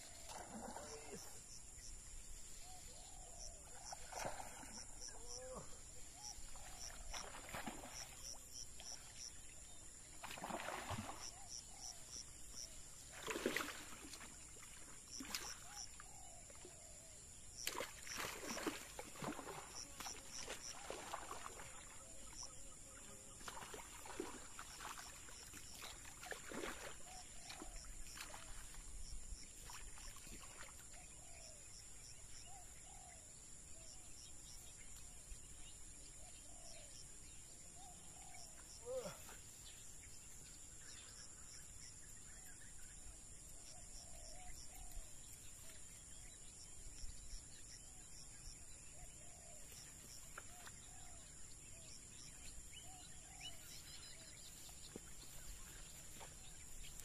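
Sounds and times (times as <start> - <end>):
insect chirps: 0.0 - 57.0
water splashing and sloshing: 3.7 - 5.1, 6.2 - 11.8, 12.5 - 16.8, 17.6 - 22.4, 23.3 - 31.2.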